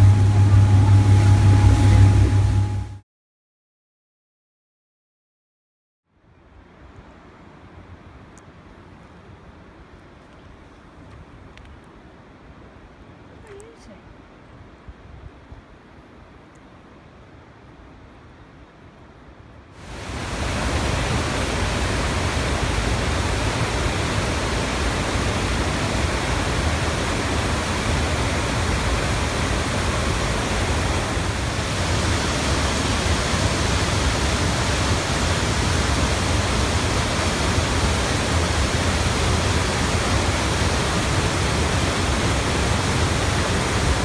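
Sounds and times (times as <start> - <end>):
river rushing over boulders: 19.8 - 44.0.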